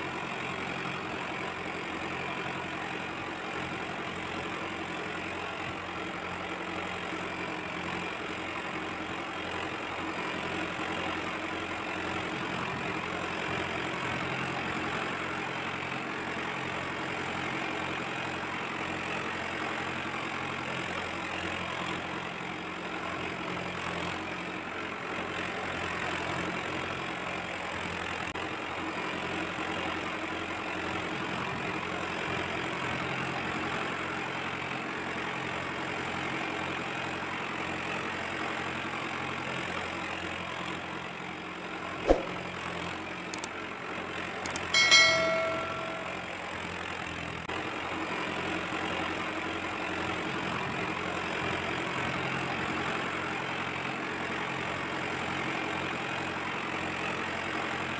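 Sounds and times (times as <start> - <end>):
sharp click: 42.1 - 42.5, 44.5 - 46.2.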